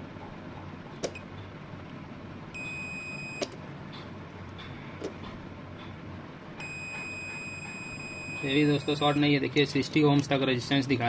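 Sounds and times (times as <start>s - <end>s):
low steady hum: 0.0s - 11.0s
multimeter continuity beep: 2.6s - 3.5s, 6.6s - 9.2s.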